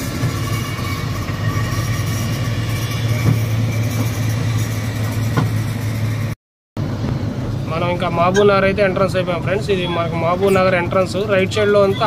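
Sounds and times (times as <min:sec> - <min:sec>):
diesel engine running: 0:00.0 - 0:09.6
road noise: 0:00.0 - 0:12.0.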